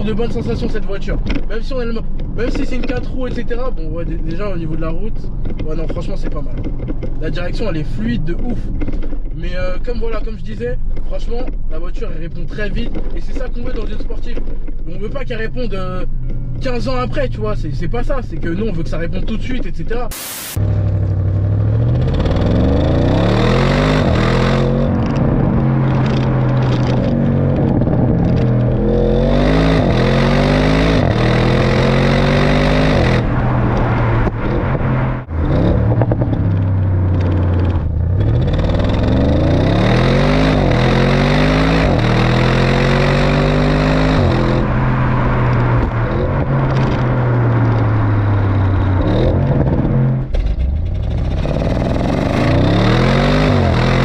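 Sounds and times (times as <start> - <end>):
road and wind rush: 0.0 - 54.0
car engine accelerating hard: 20.6 - 54.0.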